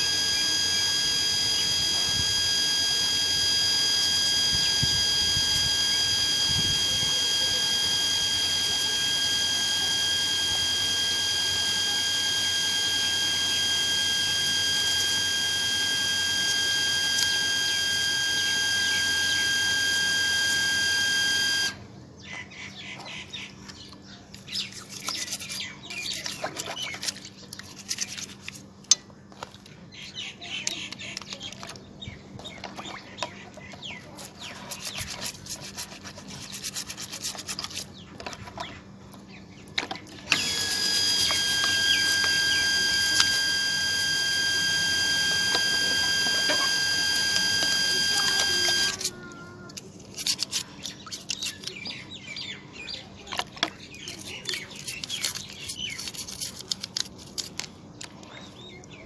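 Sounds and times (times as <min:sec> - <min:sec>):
loud high whine: 0:00.0 - 0:21.8, 0:40.2 - 0:49.1
toothbrush scrubbing plastic parts: 0:24.4 - 0:29.7, 0:32.4 - 0:39.2, 0:39.8 - 0:52.0, 0:53.3 - 0:58.2.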